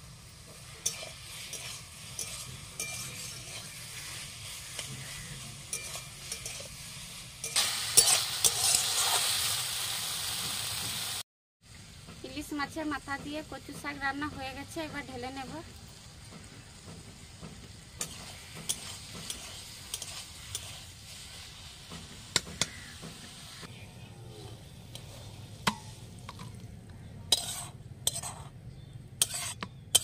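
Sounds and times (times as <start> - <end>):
curry sizzling: 0.0 - 30.0
spatula scraping plate: 0.7 - 6.8, 18.0 - 20.9, 27.3 - 28.5, 29.2 - 30.0
spatula clinking against wok: 0.8 - 5.0, 5.6 - 6.8, 29.2 - 30.0.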